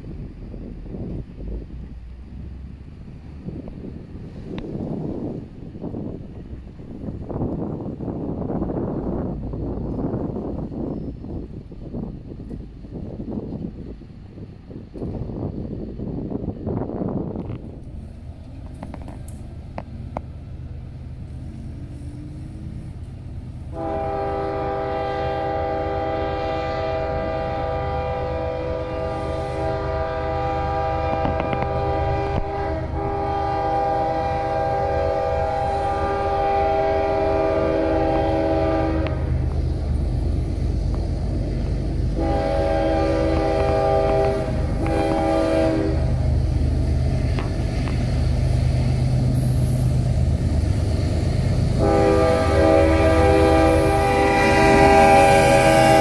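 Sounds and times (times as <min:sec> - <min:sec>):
diesel engine rumble: 0:00.0 - 0:56.0
train air horn blasts: 0:23.7 - 0:39.4, 0:42.1 - 0:46.2, 0:51.6 - 0:56.0.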